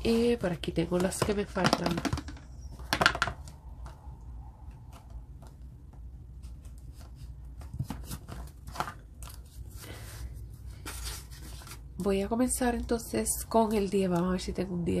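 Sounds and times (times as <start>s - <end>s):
paper envelopes rustling: 6.4s - 12.2s.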